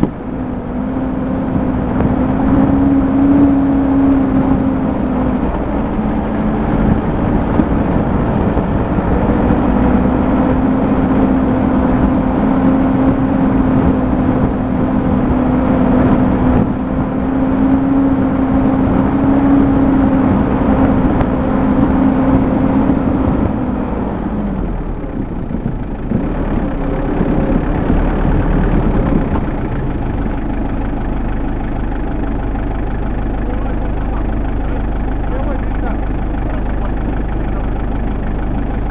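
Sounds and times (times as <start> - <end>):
off-road vehicle engine running: 0.0 - 38.9
rumble of rough ground: 0.0 - 38.9.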